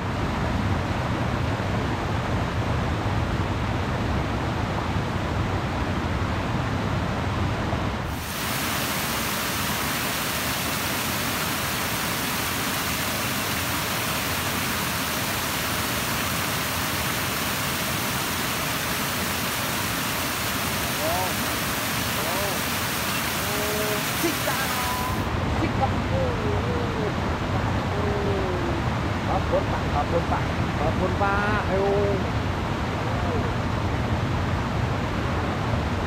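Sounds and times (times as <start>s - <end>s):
river water rushing: 7.4s - 26.1s
bright even hiss: 8.1s - 25.3s.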